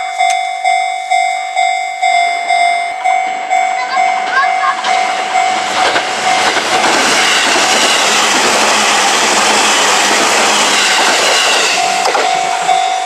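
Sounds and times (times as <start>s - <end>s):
crossing warning bell ringing: 0.0s - 13.0s
train wheels rushing on rail: 3.0s - 13.0s.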